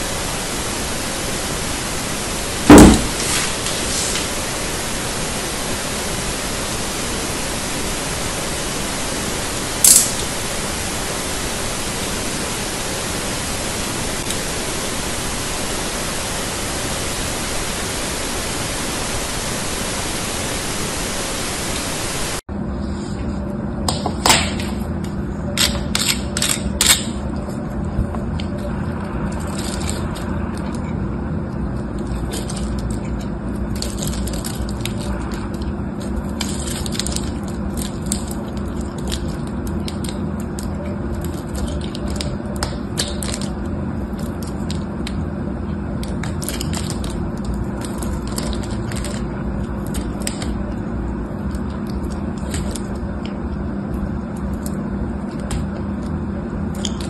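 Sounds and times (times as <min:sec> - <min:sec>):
steady hiss: 0:00.0 - 0:22.5
low steady hum: 0:00.0 - 0:57.0.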